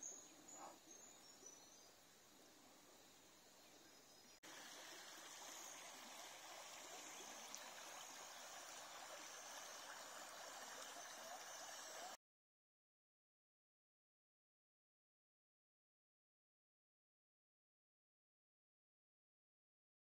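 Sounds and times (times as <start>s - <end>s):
river water running over rocks: 4.4s - 12.2s.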